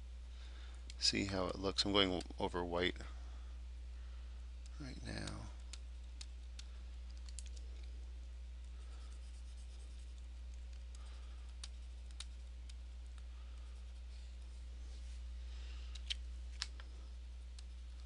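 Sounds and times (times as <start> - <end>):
low electrical hum: 0.0 - 18.0
stylus scratching on tablet: 8.7 - 10.5.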